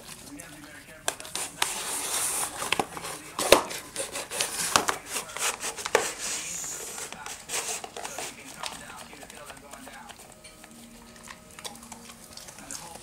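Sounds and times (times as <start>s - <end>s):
cardboard scraping and crackling: 0.0s - 13.0s
cardboard knocking on hard floor: 2.6s - 5.0s.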